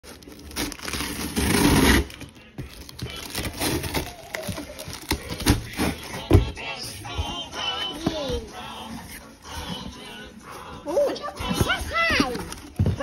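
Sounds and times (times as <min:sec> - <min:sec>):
packing tape ripping: 0:00.2 - 0:02.2, 0:02.8 - 0:06.1.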